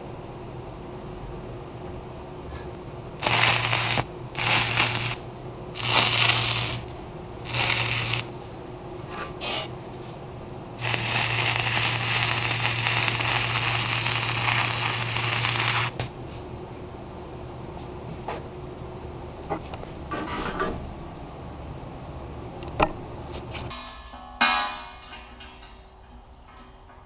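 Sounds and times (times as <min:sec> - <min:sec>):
welding arc crackling: 0:03.2 - 0:08.3, 0:10.8 - 0:16.0.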